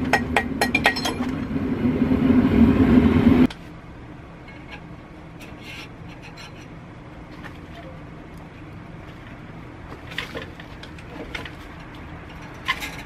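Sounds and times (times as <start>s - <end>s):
forge burner roaring: 0.0s - 5.4s.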